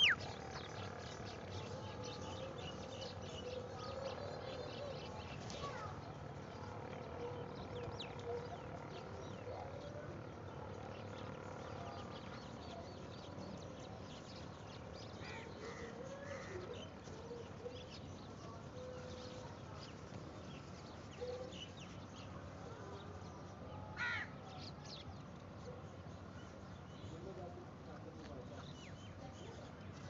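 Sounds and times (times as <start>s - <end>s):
crows cawing: 24.0s - 24.3s.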